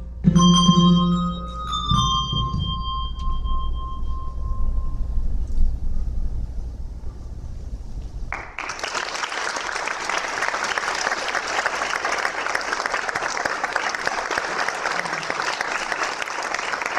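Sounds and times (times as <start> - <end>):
audience applause: 8.3 - 16.9.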